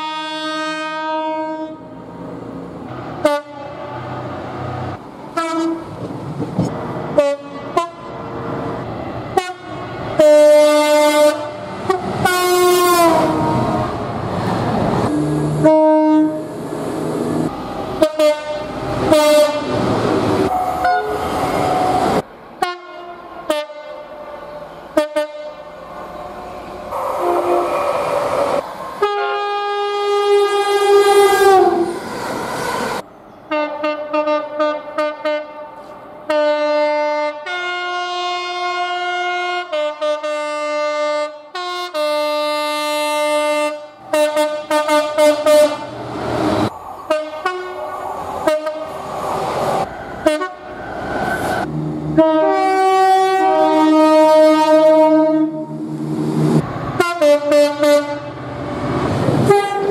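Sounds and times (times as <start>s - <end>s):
train horns: 0.0s - 2.0s, 3.2s - 4.1s, 5.4s - 6.0s, 7.2s - 8.1s, 9.3s - 13.8s, 15.0s - 16.6s, 18.0s - 19.8s, 20.4s - 25.8s, 26.9s - 28.3s, 29.0s - 32.0s, 33.5s - 46.0s, 47.0s - 49.0s, 50.2s - 50.8s, 51.6s - 55.9s, 56.9s - 58.5s, 59.4s - 59.9s
trains running through: 1.8s - 35.0s, 43.9s - 59.9s.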